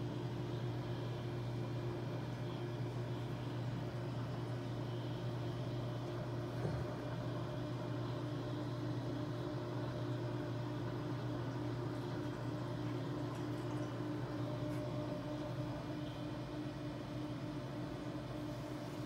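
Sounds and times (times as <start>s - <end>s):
aquarium equipment hum: 0.0s - 19.0s.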